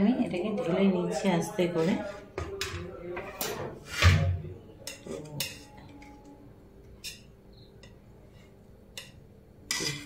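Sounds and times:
knife scraping metal bowl: 0:09.7 - 0:10.0.

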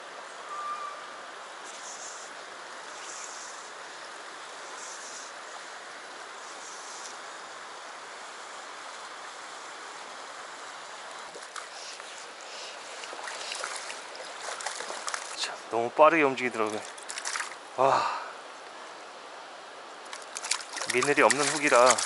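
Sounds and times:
stream rushing over rocks: 0:07.2 - 0:22.0
light clicks and rustles: 0:16.6 - 0:17.6.

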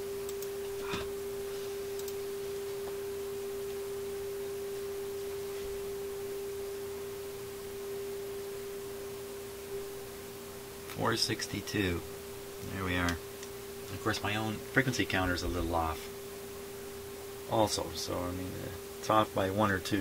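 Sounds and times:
steady test tone from radio speaker: 0:11.0 - 0:20.0.

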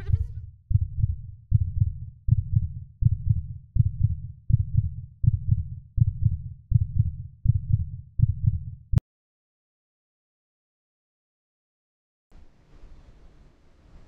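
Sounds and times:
heartbeat thumping: 0:00.0 - 0:09.0.

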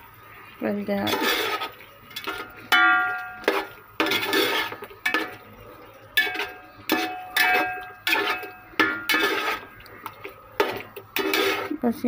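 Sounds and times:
metal spoon clanking on pot: 0:01.0 - 0:11.8.

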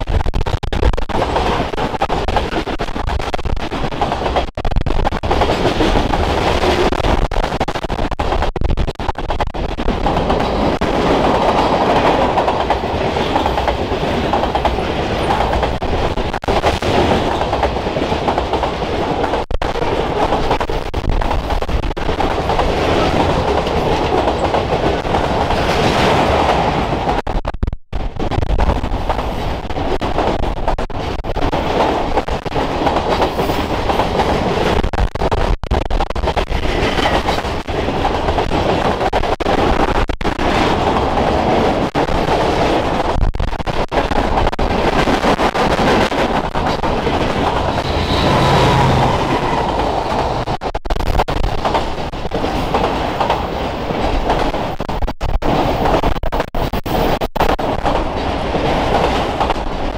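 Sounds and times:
steel wheels running over rails: 0:28.2 - 0:59.9.

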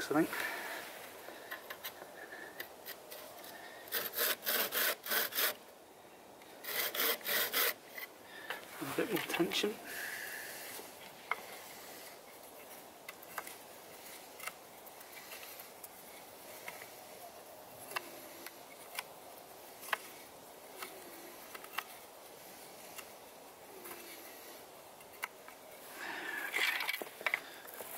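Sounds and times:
wooden saw creaking: 0:02.6 - 0:05.6, 0:06.6 - 0:08.1.

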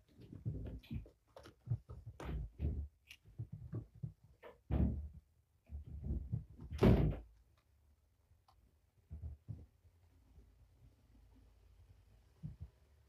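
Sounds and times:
kittens thumping on floor: 0:00.0 - 0:07.3.

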